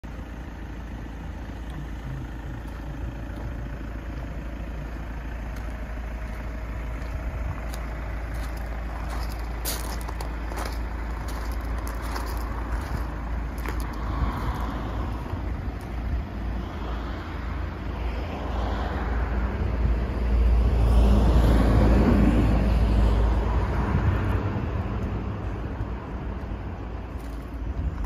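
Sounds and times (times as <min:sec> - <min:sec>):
steady low rumble: 0:00.0 - 0:28.0
footsteps on gravel: 0:05.5 - 0:16.0, 0:27.1 - 0:28.0.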